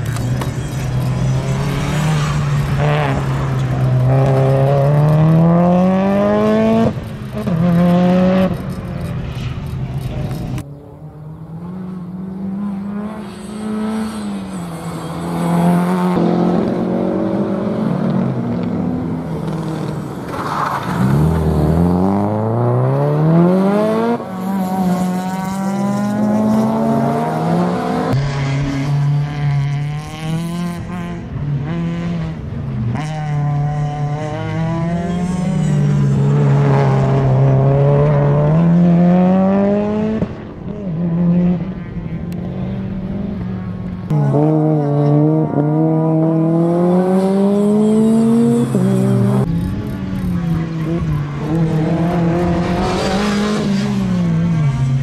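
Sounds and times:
rally car engine revving: 0:00.0 - 0:10.6, 0:11.4 - 0:55.0.

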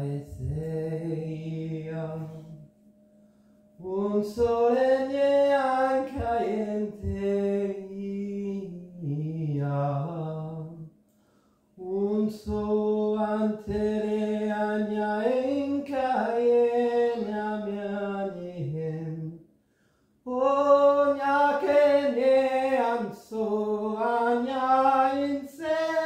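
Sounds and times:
man chanting: 0:00.0 - 0:02.7, 0:03.8 - 0:10.9, 0:11.8 - 0:19.4, 0:20.3 - 0:26.0.

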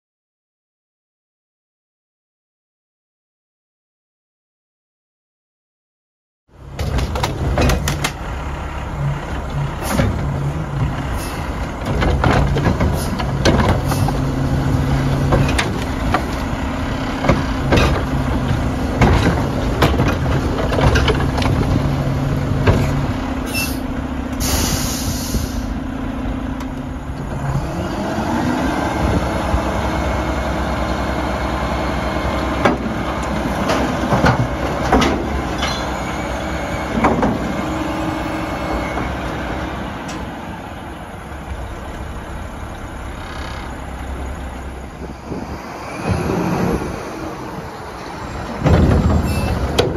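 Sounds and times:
diesel engine running: 0:06.5 - 0:49.9
air brake hiss: 0:11.1 - 0:11.6, 0:23.5 - 0:25.8
metal clanks and bangs: 0:48.3 - 0:49.9.

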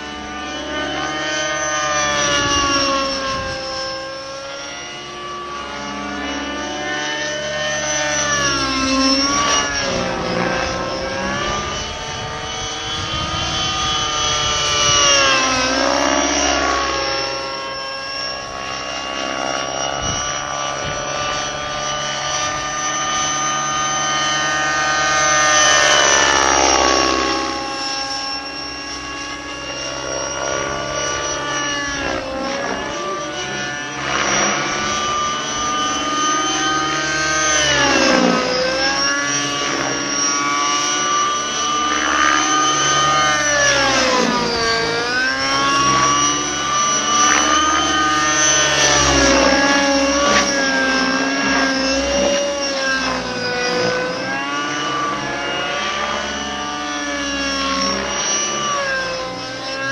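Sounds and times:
rc helicopter engine and rotor whine: 0:00.0 - 0:59.9.

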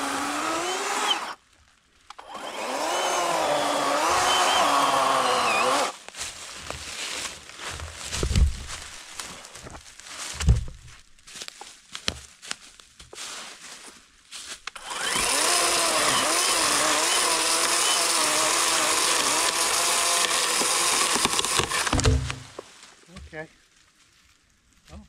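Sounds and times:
electric chainsaw cutting log: 0:00.0 - 0:01.4, 0:02.2 - 0:06.0, 0:14.7 - 0:22.6
knocks and rustles: 0:06.4 - 0:11.0, 0:21.1 - 0:23.4.

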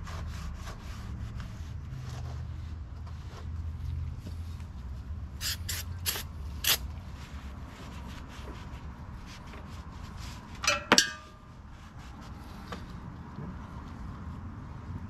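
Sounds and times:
aerosol spray hissing: 0:05.4 - 0:06.8.

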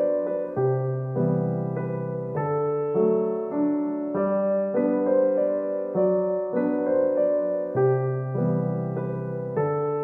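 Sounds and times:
soft piano music: 0:00.0 - 0:10.0.

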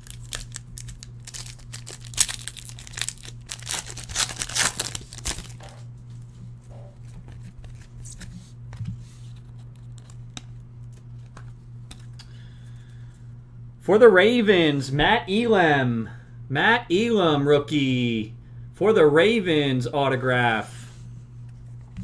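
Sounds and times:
foil wrapper tearing and crinkling: 0:00.0 - 0:05.7
cards being handled: 0:00.0 - 0:06.2, 0:07.0 - 0:12.3.

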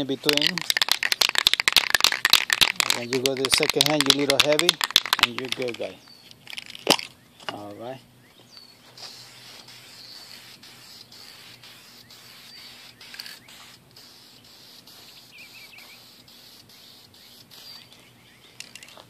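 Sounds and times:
birds chirping: 0:01.6 - 0:19.0
aerosol spray can hissing: 0:09.0 - 0:17.8.

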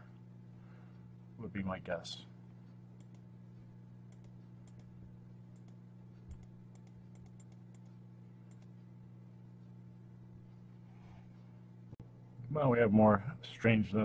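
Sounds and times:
low electrical hum: 0:00.0 - 0:14.0
computer keyboard clicks: 0:04.1 - 0:04.9, 0:05.6 - 0:08.7.

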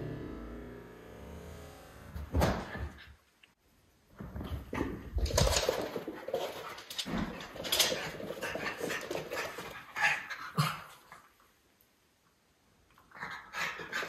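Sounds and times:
dogs thumping as they run: 0:04.2 - 0:09.9.

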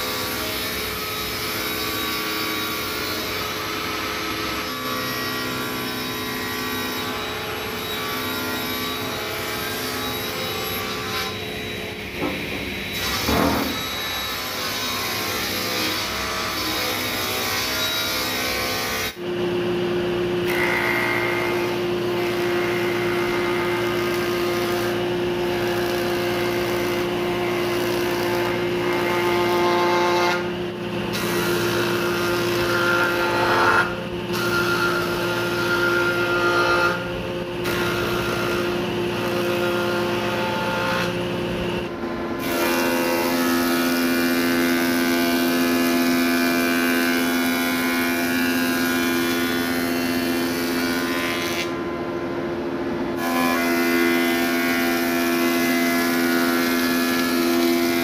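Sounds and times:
thickness planer planing board: 0:00.0 - 0:58.0
table saw ripping timber: 0:12.2 - 0:19.2, 0:20.4 - 0:30.5, 0:53.2 - 0:58.0.

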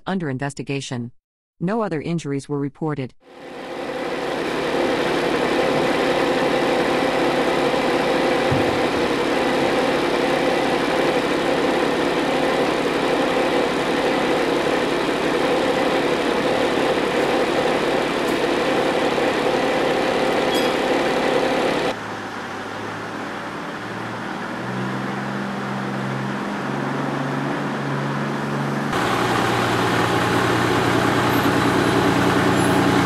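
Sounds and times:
engine idling: 0:03.5 - 0:22.0, 0:28.9 - 0:33.0.

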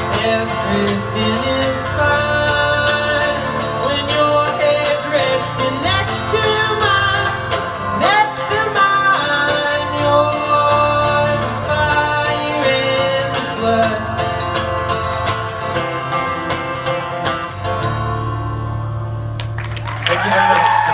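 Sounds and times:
man singing: 0:00.0 - 0:14.5
strummed acoustic guitar: 0:00.0 - 0:19.6.

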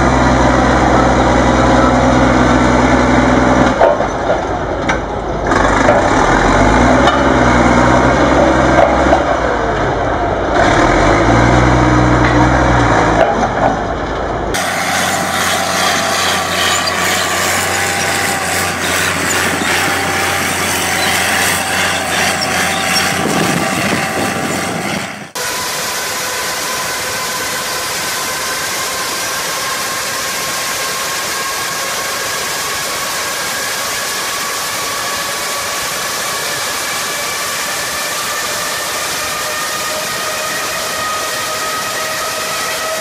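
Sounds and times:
tracked vehicle engine driving: 0:00.0 - 0:43.0
jet engine whine: 0:12.9 - 0:43.0.

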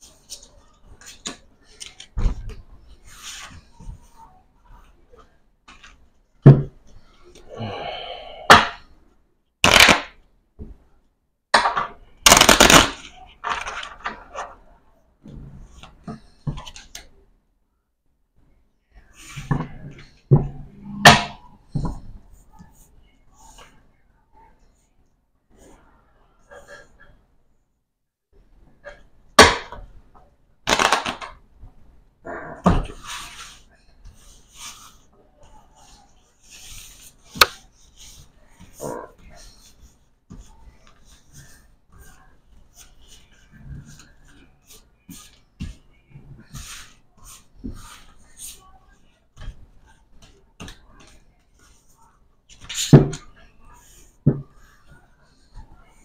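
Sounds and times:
rapid card clicks: 0:30.7 - 0:31.3
playing card slap: 0:30.7 - 0:31.4.

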